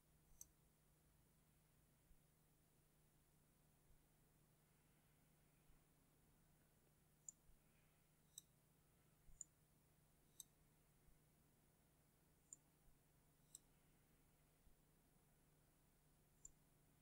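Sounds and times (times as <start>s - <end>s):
faint mouse button clicks: 13.4s - 13.8s.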